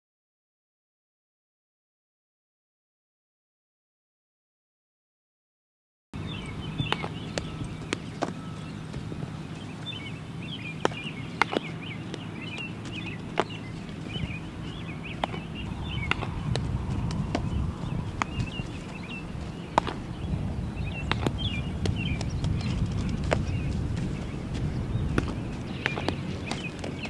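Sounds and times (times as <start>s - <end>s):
low rumble: 6.2s - 26.8s
small birds chirping: 6.2s - 27.0s
baseball smacking into leather gloves: 10.8s - 14.2s, 15.1s - 19.1s, 19.7s - 20.2s, 21.0s - 24.1s, 25.1s - 27.0s.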